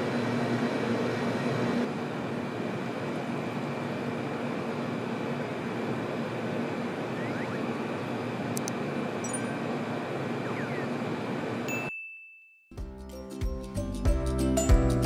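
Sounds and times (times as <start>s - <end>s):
short high ding: 9.3s - 9.6s, 11.7s - 12.6s
music: 12.7s - 15.0s.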